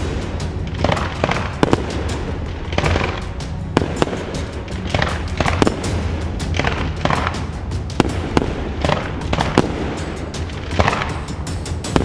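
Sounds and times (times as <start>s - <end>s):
fireworks bangs: 0.0s - 11.2s
background music with low bass: 0.0s - 12.0s
fireworks crackling fizz: 0.0s - 12.0s.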